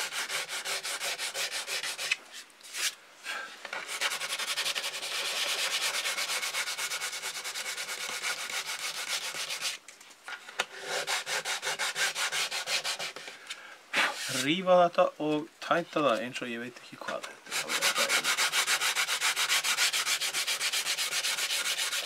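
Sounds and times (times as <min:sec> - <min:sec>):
sandpaper scratching back and forth: 0:00.0 - 0:03.0, 0:03.8 - 0:09.8, 0:10.8 - 0:13.3, 0:14.0 - 0:14.6, 0:17.5 - 0:22.0.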